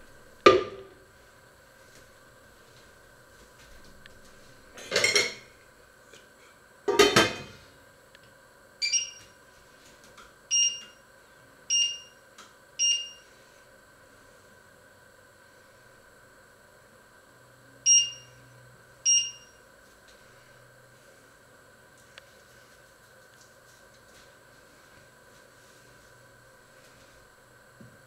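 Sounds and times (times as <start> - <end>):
short electronic beeps: 8.8 - 9.3, 11.7 - 12.1, 12.8 - 13.2, 17.9 - 18.4, 19.1 - 19.6.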